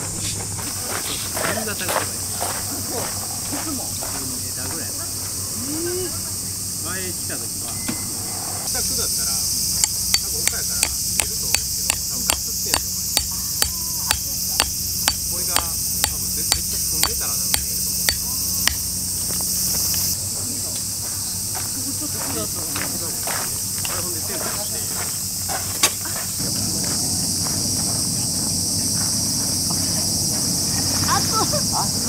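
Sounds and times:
insects buzzing: 0:00.0 - 0:32.0
hammer striking metal tent peg: 0:09.8 - 0:18.9.

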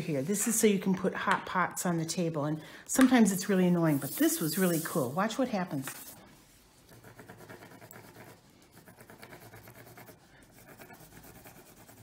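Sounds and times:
pencil scratching on paper: 0:05.7 - 0:12.0.

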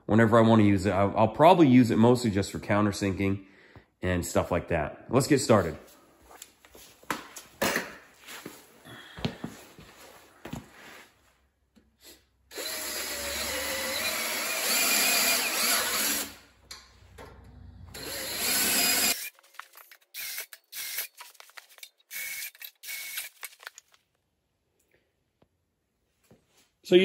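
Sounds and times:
cordless drill boring wood: 0:12.5 - 0:16.4, 0:17.9 - 0:19.3, 0:20.2 - 0:21.2, 0:22.1 - 0:23.5
short clicks and bursts: 0:19.1 - 0:24.0.

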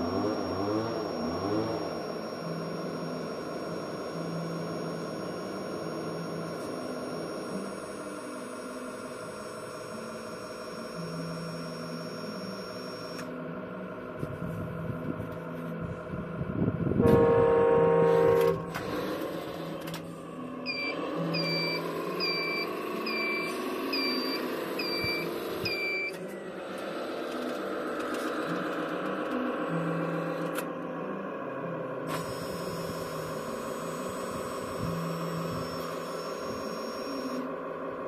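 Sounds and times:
reversing beeper: 0:00.0 - 0:13.2, 0:17.0 - 0:27.2, 0:32.1 - 0:37.5
simulated diesel engine running: 0:00.0 - 0:38.0
loud horn blast: 0:17.0 - 0:19.2.

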